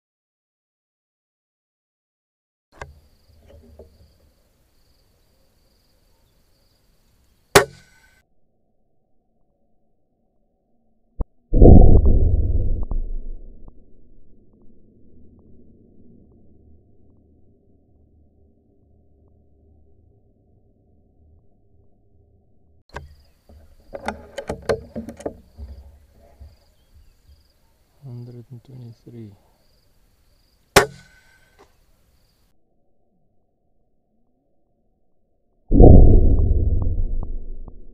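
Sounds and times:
insects trilling: 2.9 - 8.2, 22.9 - 32.5
muffled low rumble: 11.2 - 18.6, 35.7 - 37.9
air rifle clicks and knocks: 23.9 - 25.9
air rifle shot: 35.7 - 37.8.

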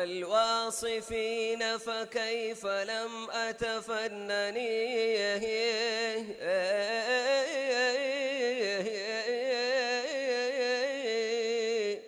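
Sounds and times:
person singing unaccompanied: 0.0 - 12.0.

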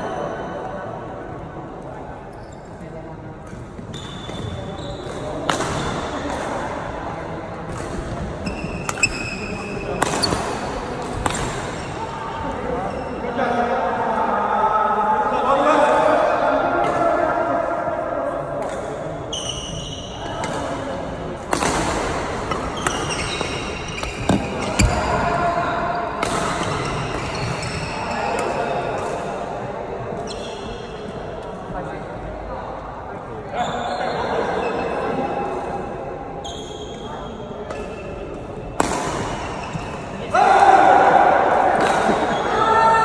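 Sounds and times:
shoes squeaking on court floor: 2.3 - 3.0, 3.8 - 5.4, 8.4 - 10.7, 19.3 - 20.6, 22.5 - 25.2, 26.6 - 28.8, 30.2 - 31.0, 33.6 - 35.0, 36.4 - 38.4, 39.3 - 40.2
racket hitting shuttlecock: 5.0 - 6.6, 8.8 - 11.8, 21.4 - 25.0, 26.2 - 27.6, 38.8 - 40.1
racket striking shuttlecock: 38.8 - 40.0.

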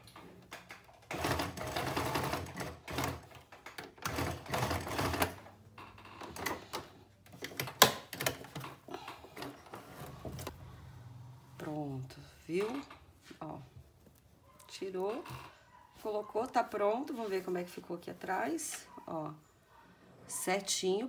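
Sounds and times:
sewing machine stitching: 0.5 - 5.5.

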